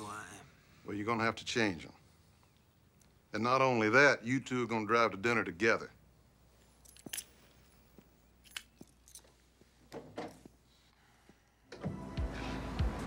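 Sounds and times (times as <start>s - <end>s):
noisy sound with music: 11.8s - 13.0s.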